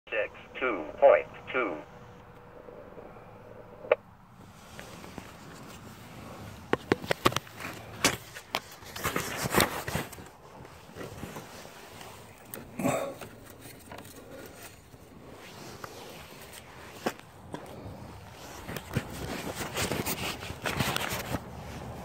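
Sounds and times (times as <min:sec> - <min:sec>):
low steady background: 0:00.1 - 0:06.8
fabric rustling against microphone: 0:04.4 - 0:22.0.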